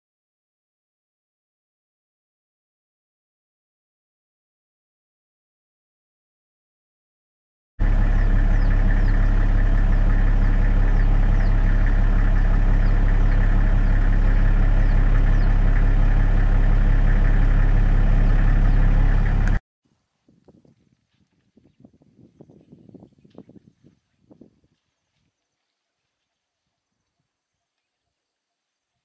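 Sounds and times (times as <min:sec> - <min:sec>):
engine-like idling drone: 0:07.8 - 0:19.6.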